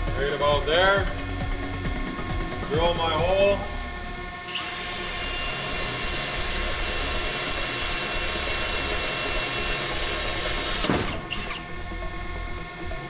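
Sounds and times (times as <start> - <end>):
drill boring through sheet metal: 4.4 - 12.0.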